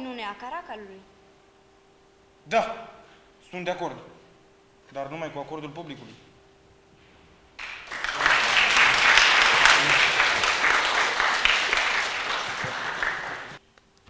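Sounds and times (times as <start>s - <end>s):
audience applauding: 7.6s - 13.6s.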